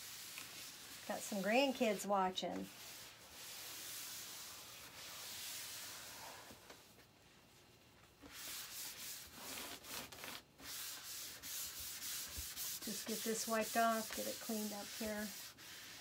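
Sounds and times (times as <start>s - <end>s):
towel wiping plastic mat: 0.0s - 6.8s, 7.9s - 16.0s.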